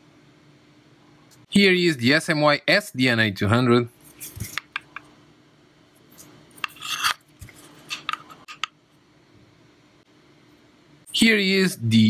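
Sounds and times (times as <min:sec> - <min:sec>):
device handling clicks and rubbing: 0:04.0 - 0:05.1, 0:06.0 - 0:08.8.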